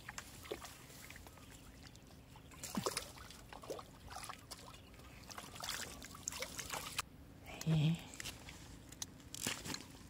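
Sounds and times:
fish splashing in water: 0.0s - 7.0s.

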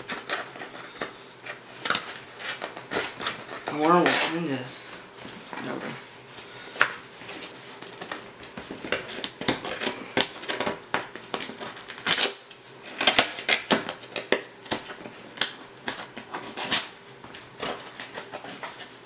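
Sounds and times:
packaging crinkling: 6.7s - 19.0s.

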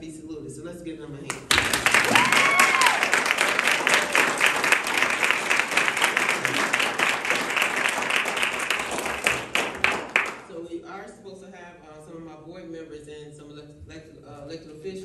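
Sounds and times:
audience applause: 1.3s - 10.5s.

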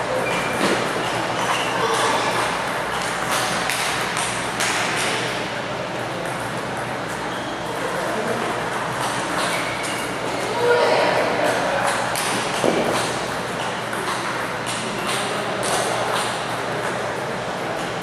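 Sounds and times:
hubbub of large hall: 0.0s - 18.0s
table tennis balls clicking: 11.8s - 17.0s.

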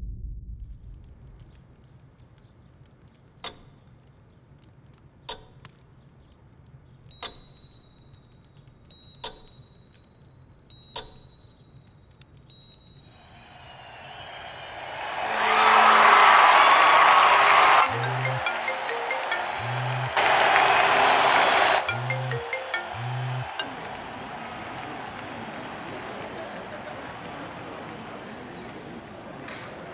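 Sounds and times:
sharp clicks: 0.9s - 12.7s.

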